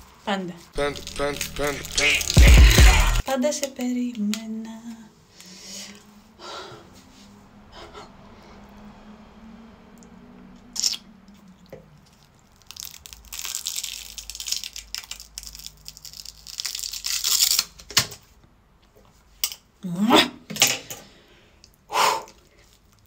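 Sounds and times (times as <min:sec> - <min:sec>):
prosthetic peeling off skin crackling: 0:00.8 - 0:03.2, 0:12.0 - 0:17.7.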